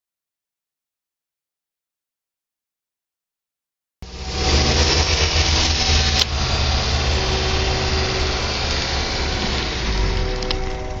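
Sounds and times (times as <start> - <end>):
distant train horn: 4.1 - 11.0.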